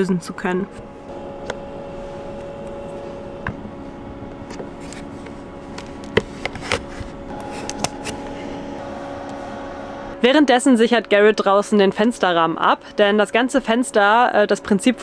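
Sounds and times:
steady hum: 0:00.0 - 0:15.0.

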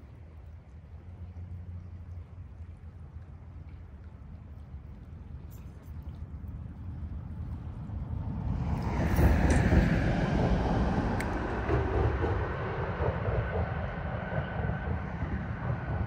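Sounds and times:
vehicle tyre rumble: 0:06.2 - 0:16.0.

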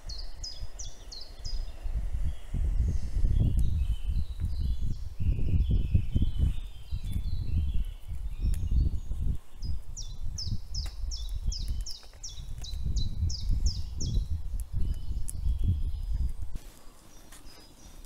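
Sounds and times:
low uneven rumble: 0:00.0 - 0:07.3.

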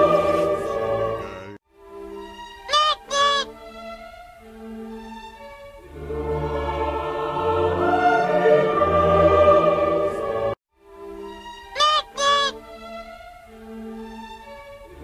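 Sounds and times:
choir and orchestra music: 0:00.0 - 0:01.5, 0:03.6 - 0:10.6
cartoon character honking: 0:00.7 - 0:01.6, 0:02.6 - 0:03.6, 0:11.7 - 0:12.6.

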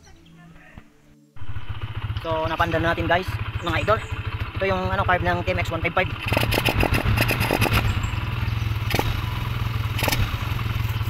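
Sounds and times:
motorcycle engine running: 0:01.4 - 0:11.0
fast clattering ticking: 0:02.0 - 0:08.3.

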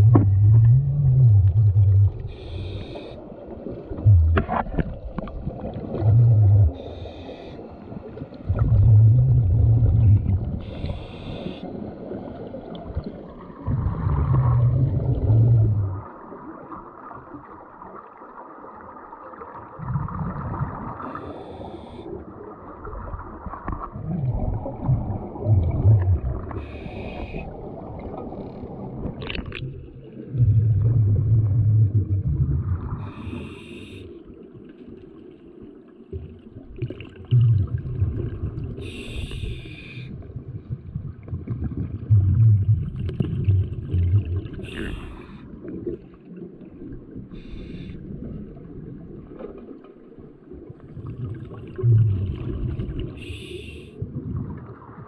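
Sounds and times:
exhaled bubbles gurgling: 0:00.0 - 0:55.0
regulator inhalation hiss: 0:02.3 - 0:03.2, 0:10.6 - 0:11.6, 0:33.0 - 0:34.1, 0:38.8 - 0:40.1, 0:53.2 - 0:53.9.

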